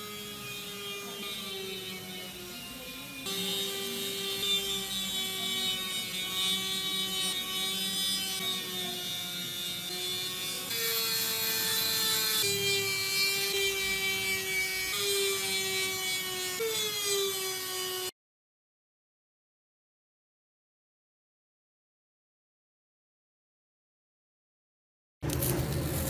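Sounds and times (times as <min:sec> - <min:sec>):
rotary tool cutting wood: 0:00.0 - 0:18.1.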